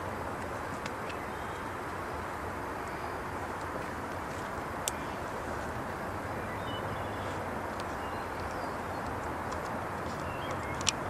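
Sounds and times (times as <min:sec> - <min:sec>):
faint bird chirps: 0:06.2 - 0:09.1.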